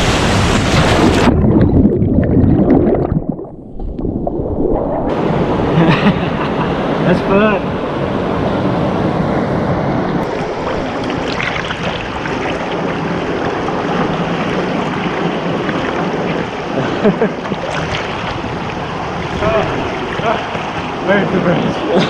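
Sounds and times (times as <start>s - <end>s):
water pouring over waterfall: 10.3s - 16.7s.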